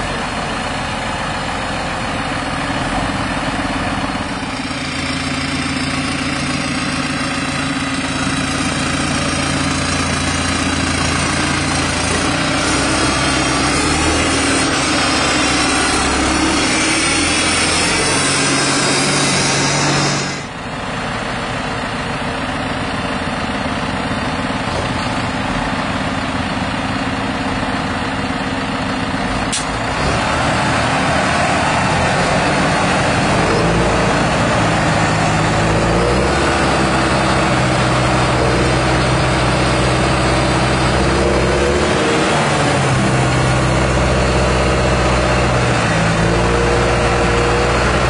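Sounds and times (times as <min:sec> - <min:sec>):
tractor diesel engines running: 0:00.0 - 0:48.0
sharp click: 0:29.5 - 0:29.7.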